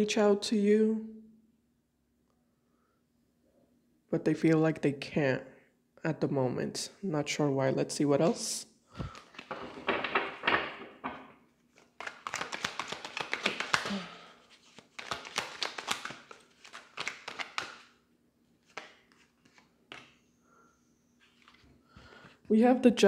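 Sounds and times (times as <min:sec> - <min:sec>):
cards shuffling: 0:08.2 - 0:20.2, 0:21.2 - 0:21.7.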